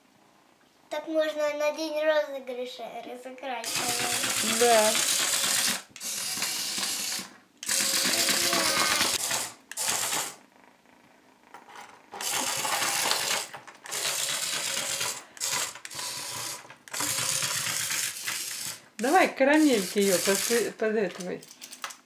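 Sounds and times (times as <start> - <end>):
toy motor whirring and rattling: 3.6 - 10.4, 12.1 - 22.0.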